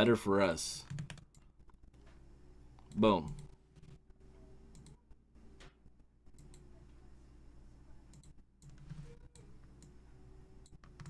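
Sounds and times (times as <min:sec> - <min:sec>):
low steady hum: 0:00.0 - 0:11.0
computer mouse clicks: 0:04.7 - 0:05.0, 0:06.3 - 0:06.6, 0:08.1 - 0:10.0.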